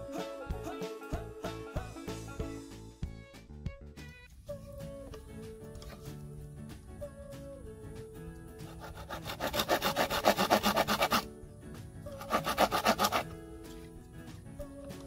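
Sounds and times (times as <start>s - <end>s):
background music: 0.0s - 15.0s
hand saw cutting bamboo: 8.6s - 11.3s, 12.2s - 13.4s.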